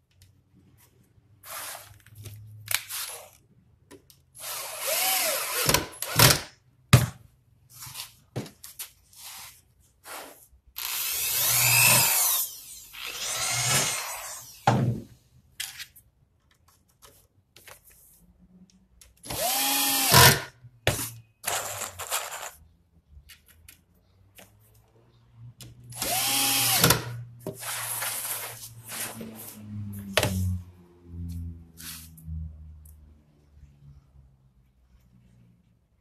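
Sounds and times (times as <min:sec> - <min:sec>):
electric drill driving screws: 0:04.4 - 0:06.5, 0:10.8 - 0:14.6, 0:19.3 - 0:20.5, 0:26.0 - 0:28.3.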